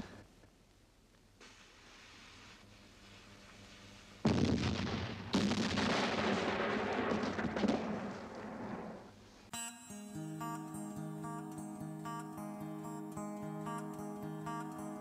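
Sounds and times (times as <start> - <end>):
cannon blasts: 4.3 - 9.2
shell exploding: 4.3 - 9.2.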